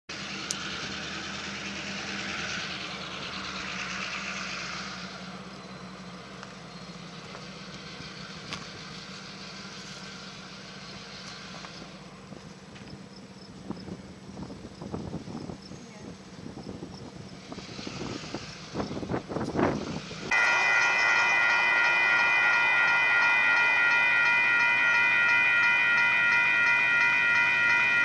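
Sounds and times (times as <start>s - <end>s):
engine idling hum: 0.1s - 28.0s
hiss: 17.4s - 19.0s.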